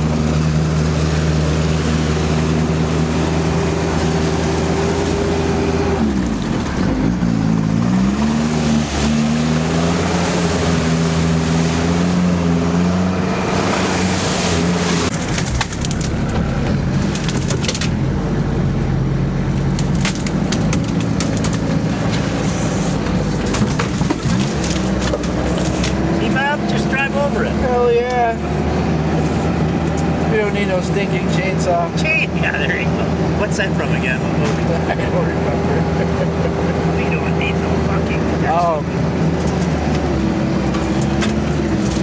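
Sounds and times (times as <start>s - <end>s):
diesel engine running: 0.0s - 42.0s
debris crackling under tyres: 15.1s - 18.2s, 19.4s - 26.4s, 39.2s - 42.0s.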